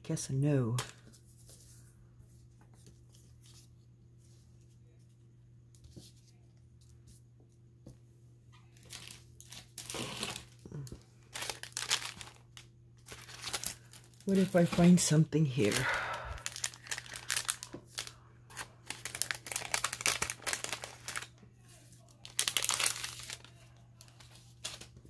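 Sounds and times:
paper crinkling and rustling: 8.6 - 25.0.

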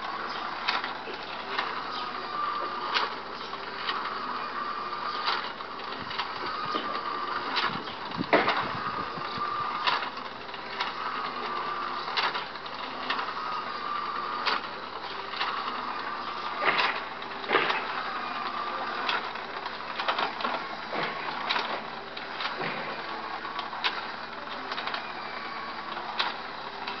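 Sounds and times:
electric motor whine: 0.0 - 27.0.

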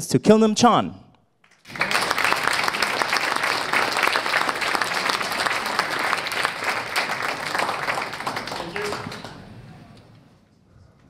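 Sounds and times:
audience applauding: 1.4 - 10.2.

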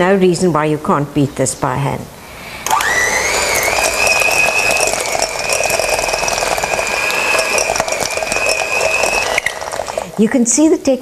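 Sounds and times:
electric hand beater whining: 2.4 - 10.4.

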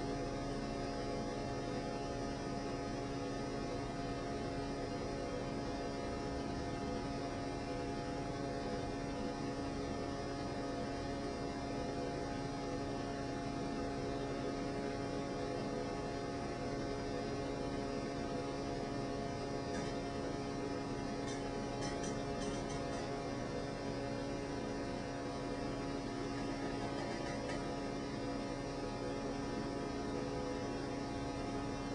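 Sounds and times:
steady hum and hiss: 0.0 - 31.9.

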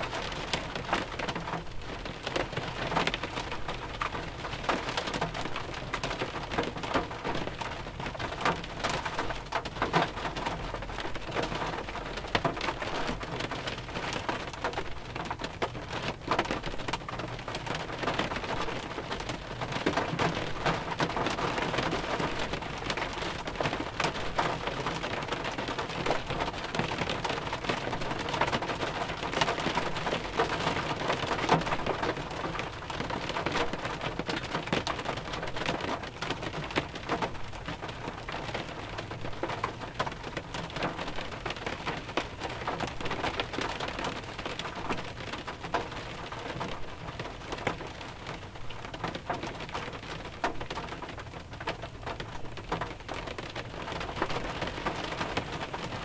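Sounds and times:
rain drops on car body: 0.0 - 56.0.

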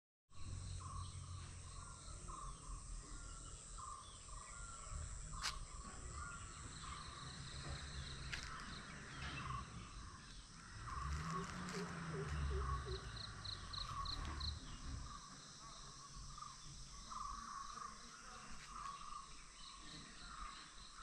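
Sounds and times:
insects buzzing high-pitched: 0.4 - 21.0
low rumble: 3.8 - 15.3.

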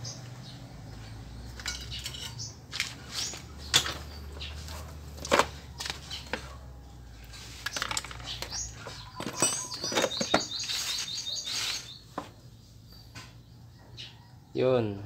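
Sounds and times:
clicks and rustles handling wiring: 1.6 - 6.6, 7.2 - 11.9.

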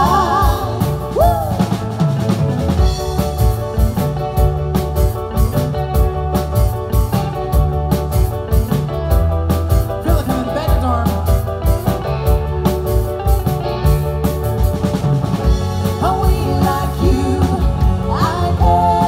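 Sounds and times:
person singing: 0.0 - 1.8, 15.9 - 19.0
drum kit beat: 0.0 - 19.0
live pop-rock band playing: 0.0 - 19.0.

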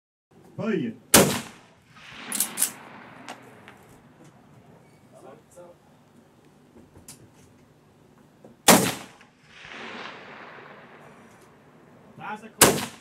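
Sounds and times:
rifle shot crack: 1.1 - 4.1, 8.6 - 11.7, 12.6 - 13.0.

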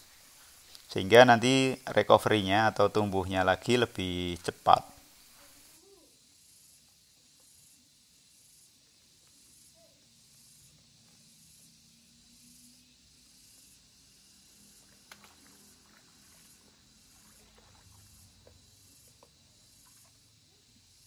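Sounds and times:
faint pulsing outdoor hiss: 0.0 - 21.0.

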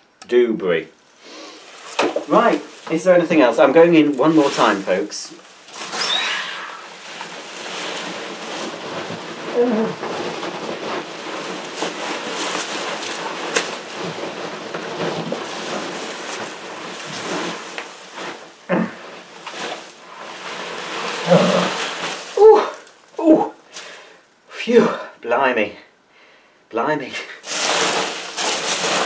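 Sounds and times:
packing peanuts rustling and squeaking: 1.1 - 24.1, 27.4 - 29.0
muffled grunts: 18.7 - 19.0.

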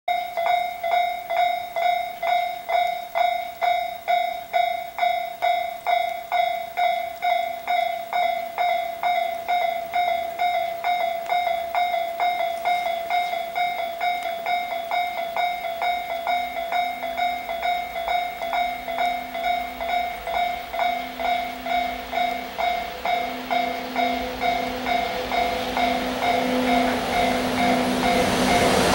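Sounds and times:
level crossing alarm clanging: 0.1 - 28.9
electric locomotive hum and rumble: 0.3 - 28.9.

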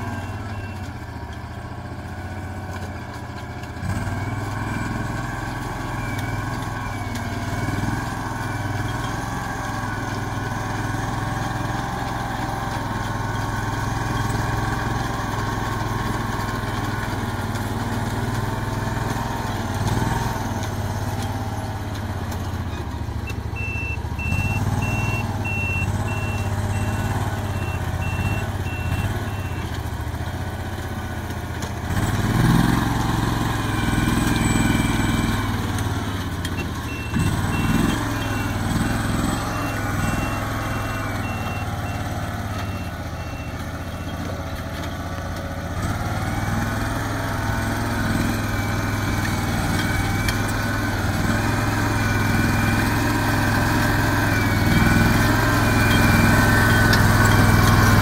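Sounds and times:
short electronic beeps: 0.0 - 1.1, 22.6 - 29.8, 33.3 - 44.4, 47.7 - 58.0
farm machine engine running: 0.0 - 58.0.

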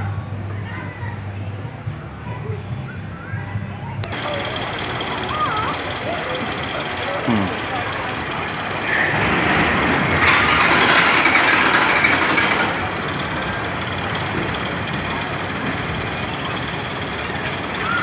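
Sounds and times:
roller coaster train rattling: 4.1 - 18.0.

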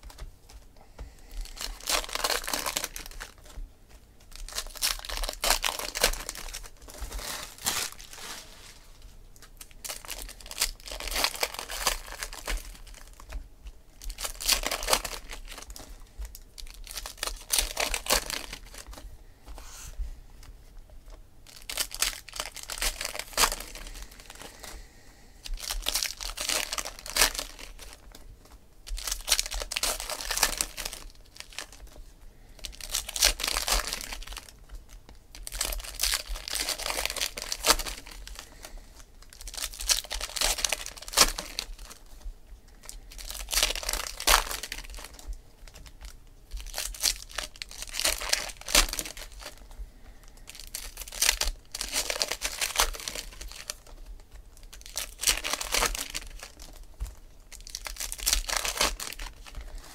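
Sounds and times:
cards shuffled by hand: 0.0 - 20.0
foil wrappers crinkling and tearing: 0.0 - 20.5, 21.1 - 59.9.

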